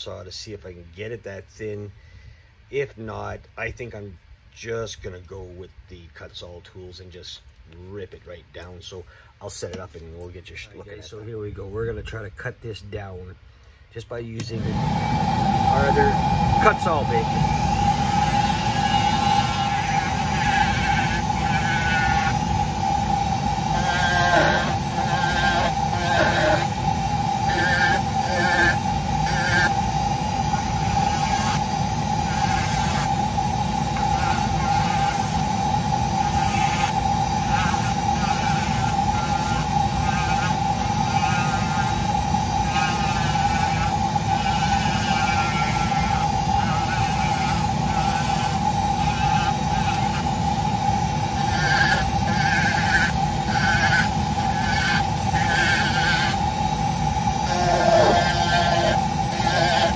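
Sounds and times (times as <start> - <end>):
rotary tool high whine: 14.4 - 59.9.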